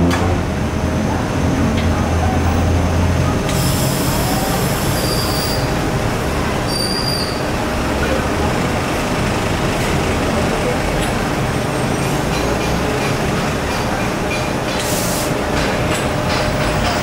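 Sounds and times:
welding hiss: 3.5s - 5.7s.

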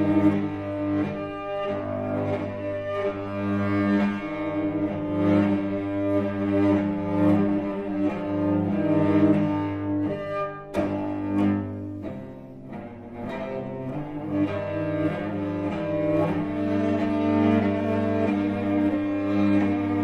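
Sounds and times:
solo cello bowed notes: 0.0s - 20.0s.

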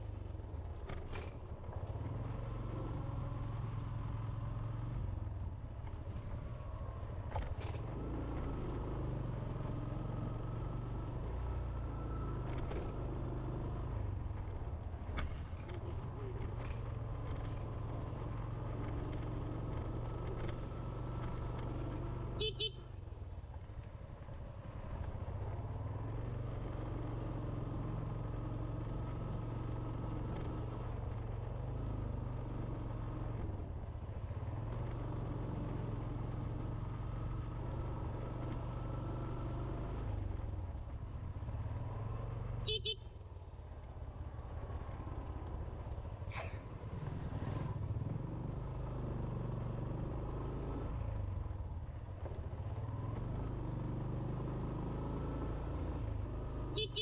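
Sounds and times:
motorbike horn toot: 22.3s - 22.9s, 42.6s - 43.2s, 56.8s - 57.0s.

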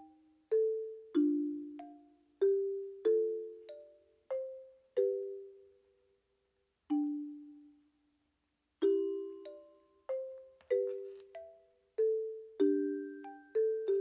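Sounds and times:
bell-like mallet notes: 8.8s - 14.0s.

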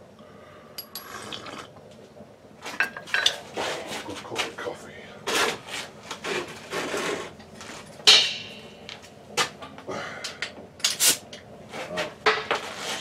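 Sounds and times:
objects scraping and knocking: 5.3s - 8.0s.

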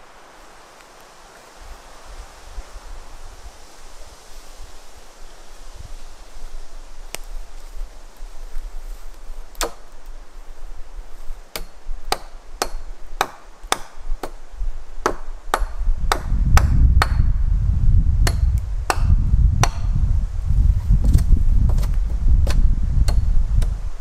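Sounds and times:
sharp knocks on wood: 15.0s - 17.3s.

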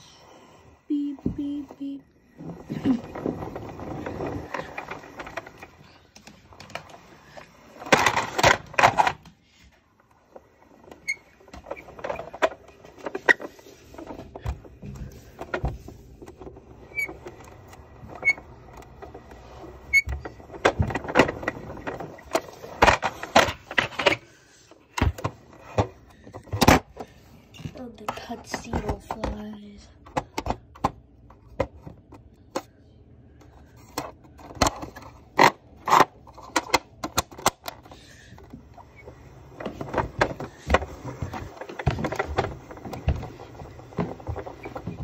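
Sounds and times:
plastic toy vehicle rattling: 2.6s - 9.3s, 15.3s - 24.2s.

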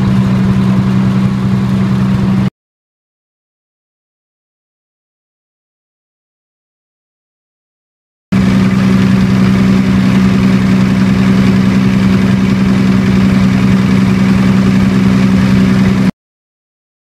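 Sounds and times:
diesel generator engine humming: 0.0s - 2.5s, 8.3s - 16.1s.

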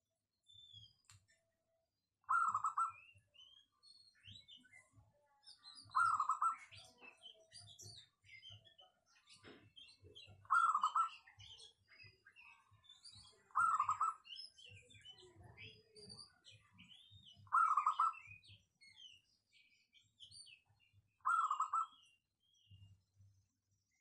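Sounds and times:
high chirping: 21.2s - 22.0s.

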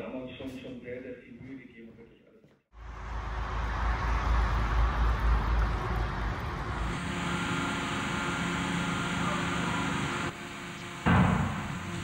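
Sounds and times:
road traffic rumble: 2.8s - 12.0s.

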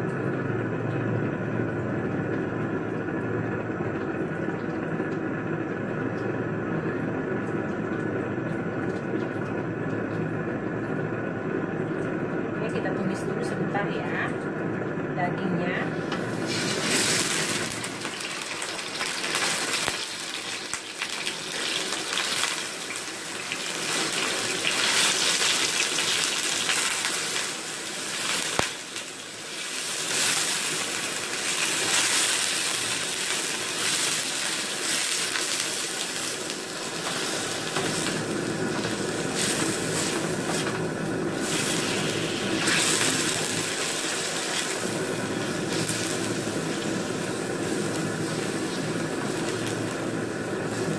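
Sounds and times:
beef sizzling in wok: 16.0s - 50.9s.

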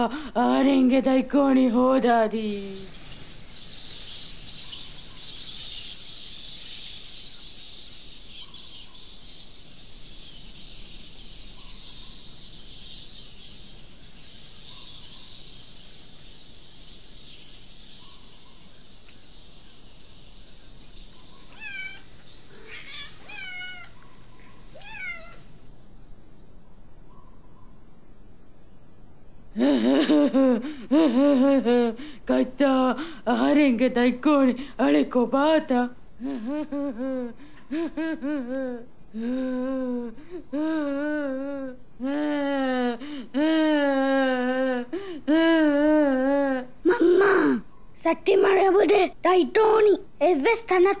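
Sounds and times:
night insects droning: 0.0s - 51.0s
cat meowing: 21.5s - 23.9s, 24.8s - 25.4s.

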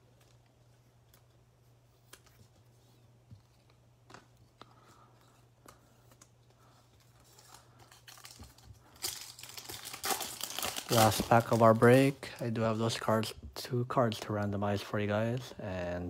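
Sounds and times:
foil wrapper crinkling: 7.2s - 12.5s.

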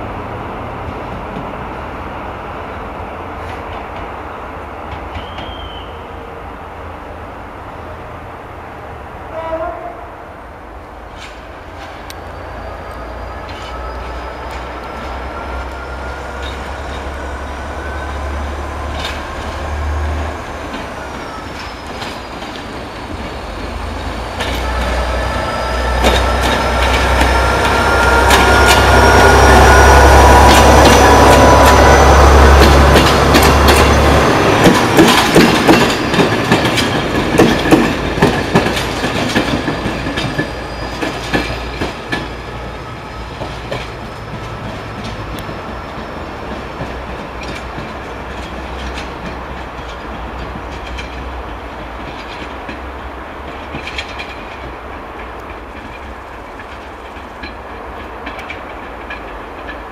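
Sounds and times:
railcar engine rumble: 0.0s - 59.9s
wheels squealing: 11.2s - 38.1s, 38.8s - 47.8s
wheels clicking over rail joints: 12.9s - 59.9s.

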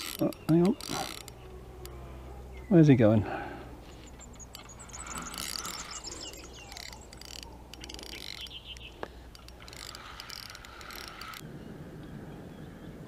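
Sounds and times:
fishing reel clicking and whirring: 0.0s - 2.0s, 4.0s - 11.4s.

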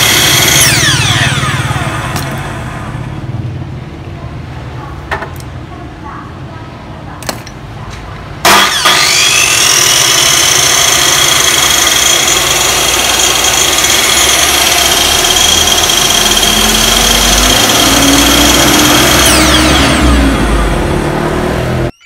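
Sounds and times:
miter saw motor whining: 0.0s - 3.1s, 8.5s - 21.9s.

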